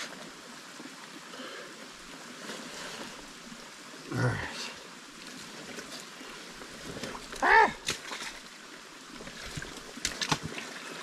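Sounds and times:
mud and water splashing: 0:00.0 - 0:11.0
running water: 0:00.0 - 0:11.0
person grunting with effort: 0:07.4 - 0:07.8.

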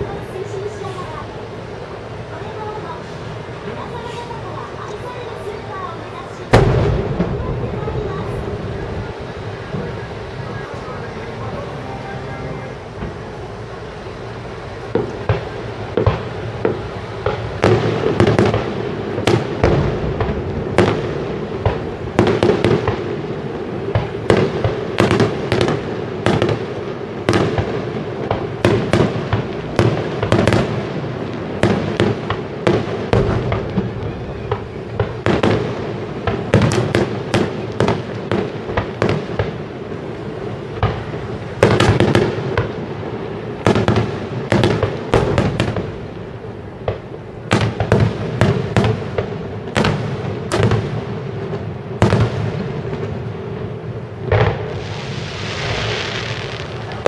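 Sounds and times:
continuous rumbling: 0:00.0 - 0:57.0
firework shells bursting: 0:23.8 - 0:40.1, 0:43.6 - 0:53.2.

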